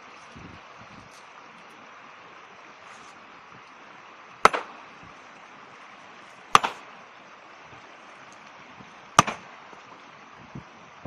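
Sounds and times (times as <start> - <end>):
river rushing: 0.0 - 11.0
hammer striking rock: 4.4 - 4.8, 6.5 - 6.8, 9.2 - 9.4.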